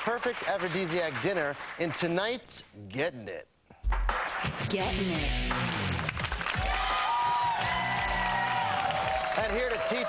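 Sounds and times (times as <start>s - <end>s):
steady drum beat: 3.8s - 6.0s.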